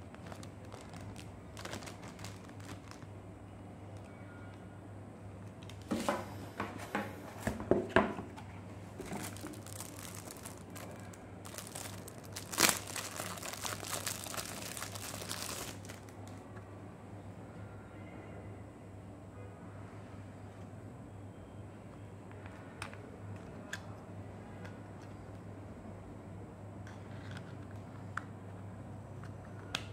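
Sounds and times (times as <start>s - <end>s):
plastic packaging crinkling: 0.0s - 3.2s, 9.0s - 16.4s.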